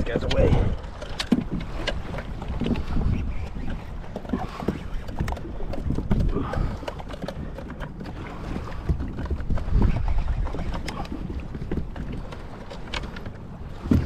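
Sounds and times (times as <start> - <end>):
water slapping kayak hull: 0.0 - 14.0
wind buffeting microphone: 0.0 - 14.0
small clicks and knocks: 0.2 - 2.8.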